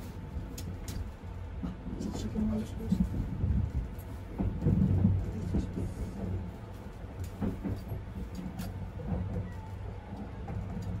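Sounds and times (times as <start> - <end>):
train low rumble and hum: 0.0 - 11.0
sharp clicks from train wheels: 2.9 - 11.0.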